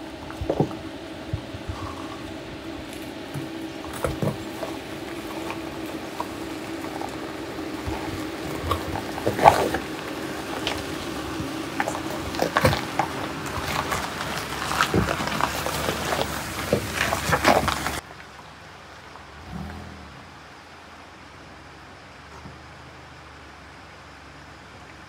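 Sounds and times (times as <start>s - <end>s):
tyres crunching on stones: 0.0s - 18.4s
low engine hum: 0.0s - 25.0s.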